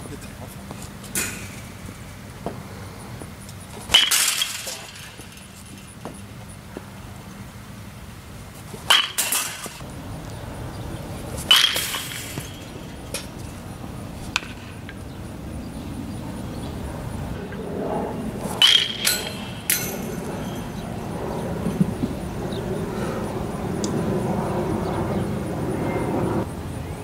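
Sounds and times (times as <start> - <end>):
metal bat pinging ball: 11.4 - 13.4, 18.6 - 20.1.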